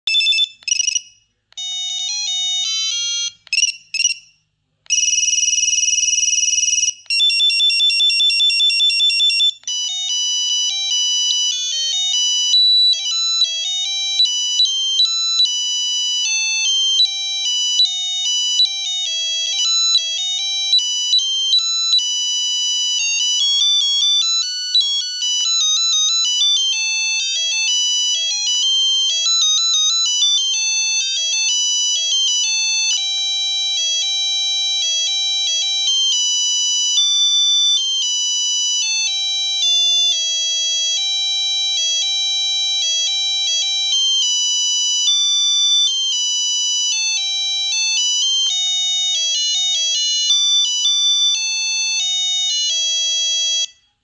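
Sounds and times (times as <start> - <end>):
multi-note ringtone melody: 0.1 - 1.0, 1.6 - 4.2, 6.6 - 53.9
buzzing phone ring: 0.1 - 30.4
phone ringtones through small speaker: 0.1 - 46.3, 46.9 - 54.0.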